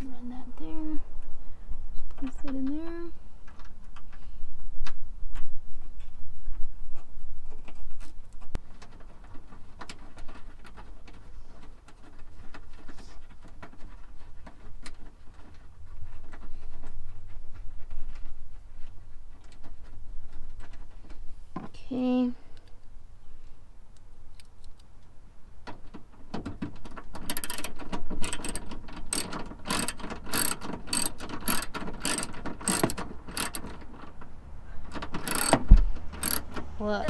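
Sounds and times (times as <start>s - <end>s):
small metallic clicks and taps: 34.9s - 36.7s.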